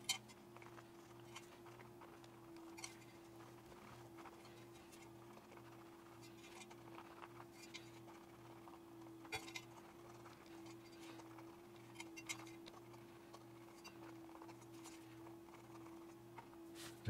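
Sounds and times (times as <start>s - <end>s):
faint hum: 0.0s - 17.0s.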